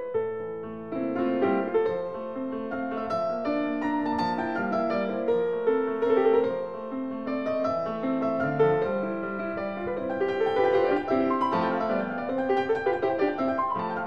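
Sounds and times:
classical piano music: 0.0 - 14.0.

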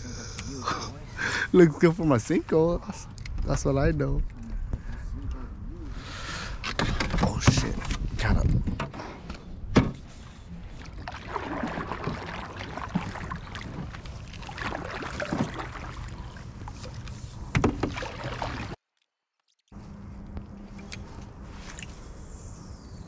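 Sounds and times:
paddle splashing through water: 10.1 - 18.8
paddle knocking against canoe: 11.0 - 16.1.

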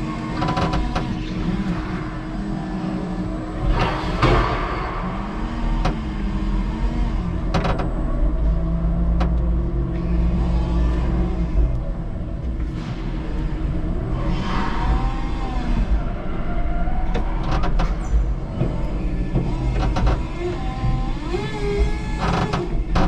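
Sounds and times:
forklift motor hum: 0.0 - 23.0
sharp knocks and clatter: 3.6 - 6.4.

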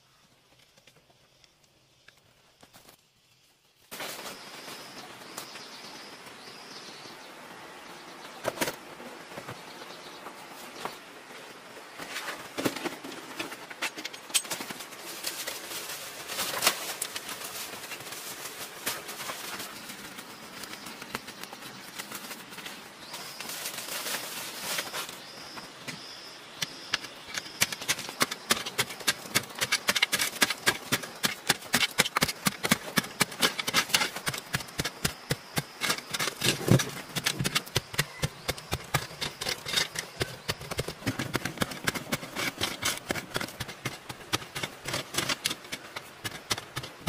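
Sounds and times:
earth clods pattering down: 8.4 - 47.0
hands scraping dry soil: 12.0 - 47.0.

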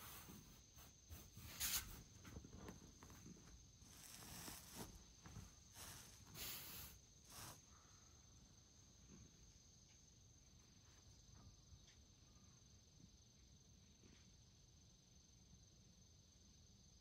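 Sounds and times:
soft rustles: 0.0 - 7.6.

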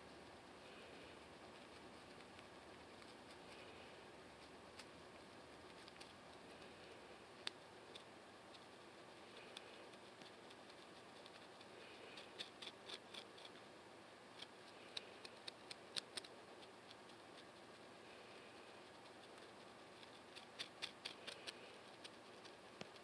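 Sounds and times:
fingernails scratching scalp: 9.4 - 13.6, 18.8 - 23.0.

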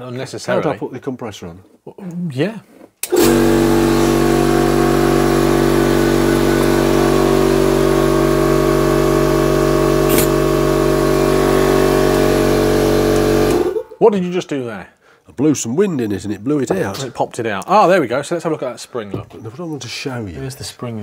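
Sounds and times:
air compressor running: 3.0 - 13.9
sharp click: 10.1 - 10.4.

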